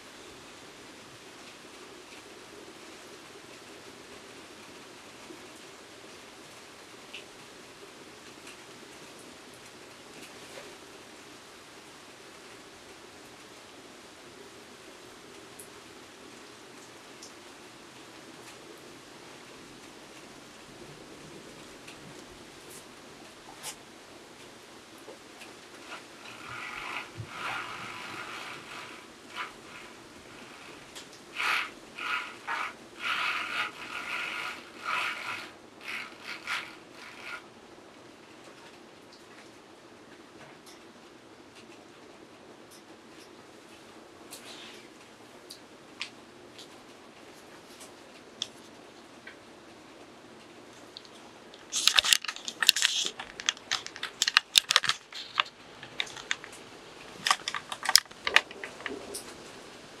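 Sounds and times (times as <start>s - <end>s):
faint steady hiss: 0.0s - 60.0s
roller blind mechanism whirring: 25.0s - 37.7s, 51.6s - 60.0s
camera handling clicks and rustles: 51.6s - 56.6s, 57.2s - 59.0s.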